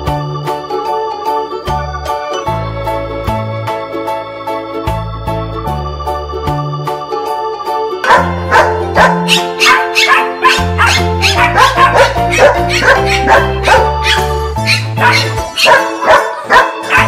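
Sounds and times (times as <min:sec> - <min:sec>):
upbeat background music: 0:00.0 - 0:17.0
dog barking: 0:08.0 - 0:17.0.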